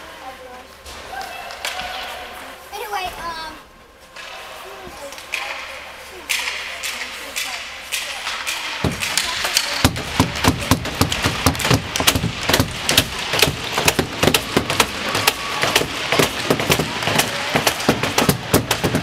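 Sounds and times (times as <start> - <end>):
hockey sticks tapping on ice: 4.2 - 19.0.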